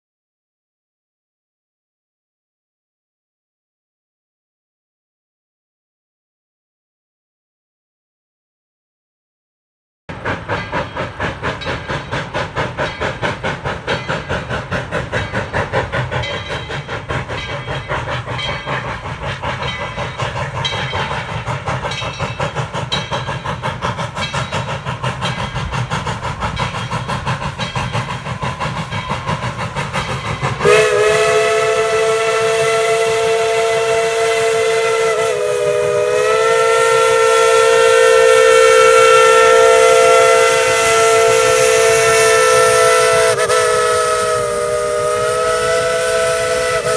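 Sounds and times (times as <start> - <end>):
steam locomotive chuffing: 10.1 - 46.9
steam whistle blast: 30.5 - 46.9.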